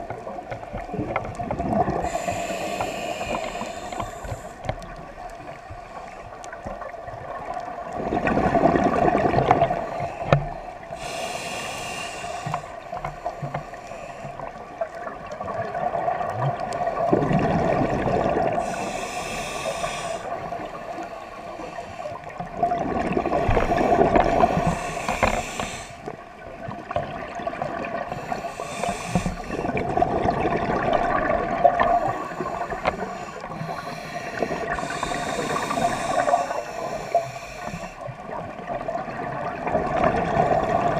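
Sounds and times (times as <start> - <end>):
exhaled bubbles burbling: 0.0 - 2.2, 6.8 - 9.8, 15.4 - 18.7, 22.5 - 24.7, 28.8 - 33.0, 38.1 - 40.9
hissing regulator inhale: 1.9 - 4.9, 9.6 - 14.5, 18.5 - 22.4, 23.3 - 26.1, 28.1 - 29.8, 31.8 - 38.1.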